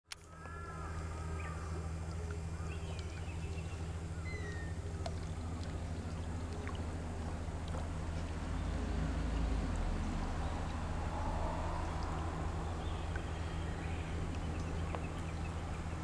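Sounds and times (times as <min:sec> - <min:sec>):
motor humming: 0:00.1 - 0:16.0
bird chirps: 0:02.6 - 0:04.9.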